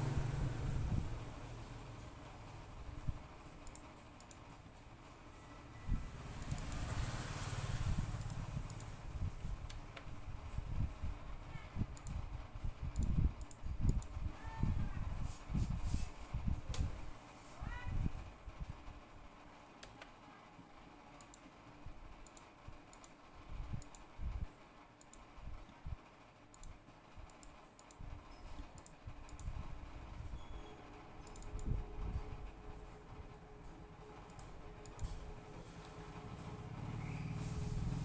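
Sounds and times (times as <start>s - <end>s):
low background rumble: 0.0s - 5.2s, 21.6s - 38.0s
mouse and keyboard clicking: 12.9s - 14.2s, 31.2s - 31.8s.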